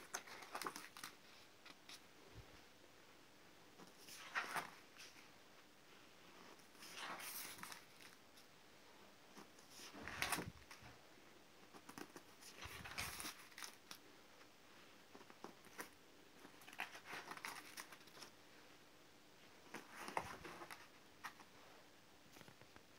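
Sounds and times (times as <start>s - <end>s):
paper pages turning: 0.0s - 2.0s, 3.8s - 5.2s, 6.7s - 8.2s, 9.4s - 10.9s, 11.8s - 14.0s, 16.6s - 18.3s, 19.7s - 21.5s.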